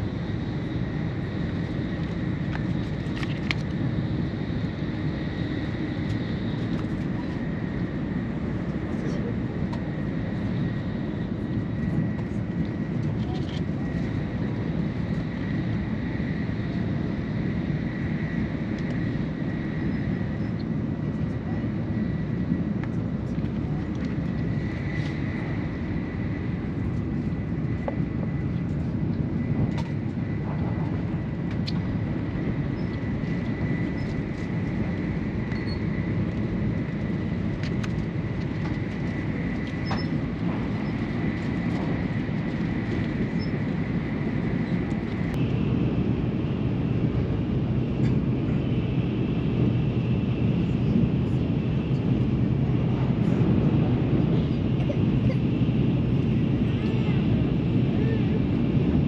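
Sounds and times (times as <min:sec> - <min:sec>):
faint high whine: 0:00.0 - 0:59.0
train rumble inside passenger car: 0:00.0 - 0:59.0.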